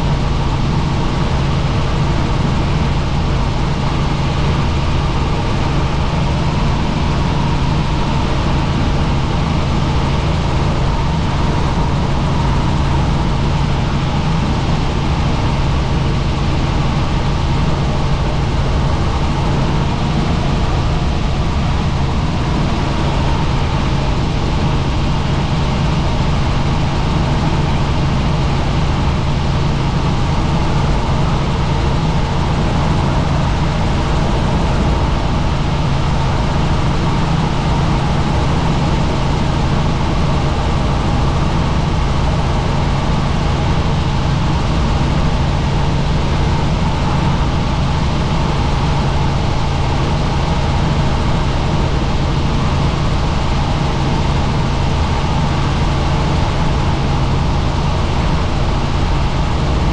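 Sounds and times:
helicopter engine and rotors droning: 0.0s - 59.9s.

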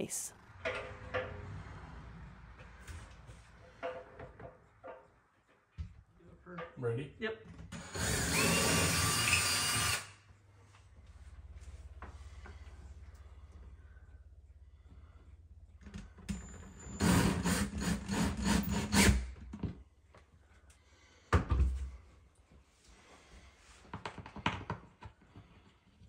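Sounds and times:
cordless drill boring: 7.7s - 10.2s, 16.3s - 19.3s.

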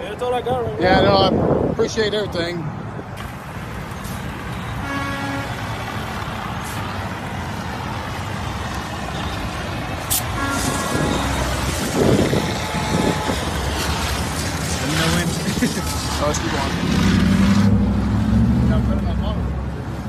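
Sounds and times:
highway traffic: 0.0s - 20.0s
fire extinguisher hissing: 10.0s - 16.8s.

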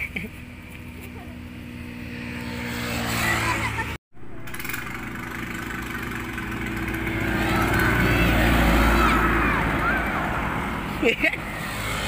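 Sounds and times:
motorcycle approaching: 0.0s - 12.0s
motor scooter passing: 0.4s - 12.0s
cargo truck engine: 3.2s - 12.0s.

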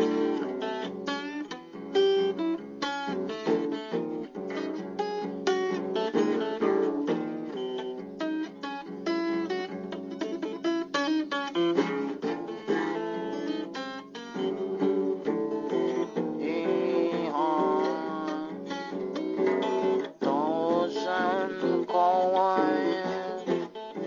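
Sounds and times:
acoustic guitar picking and strumming: 0.0s - 24.0s
wavering held melody: 0.0s - 24.0s.

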